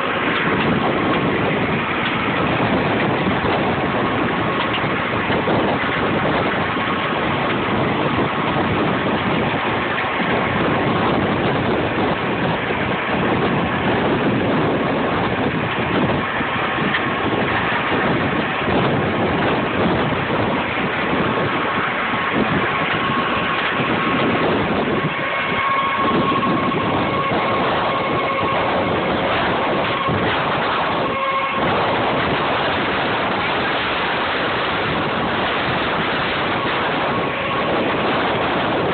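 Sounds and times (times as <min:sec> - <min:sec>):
harvesting machine running: 0:00.0 - 0:38.9.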